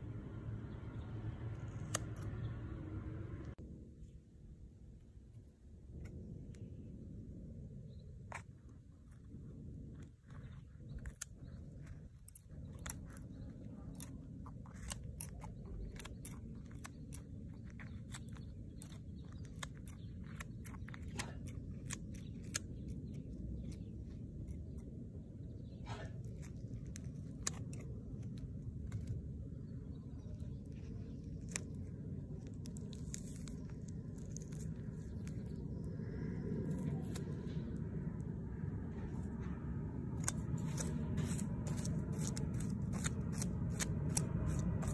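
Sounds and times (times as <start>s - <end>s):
low rumble: 0.0s - 44.9s
scissors snipping dry chilli: 1.4s - 2.5s, 10.9s - 24.8s, 40.2s - 44.9s.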